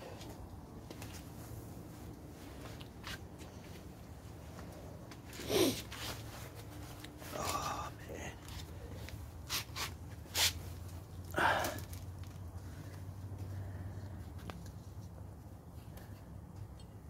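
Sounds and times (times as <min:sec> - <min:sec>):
low steady hum: 0:00.0 - 0:17.0
person sniffing and breathing: 0:05.4 - 0:06.4.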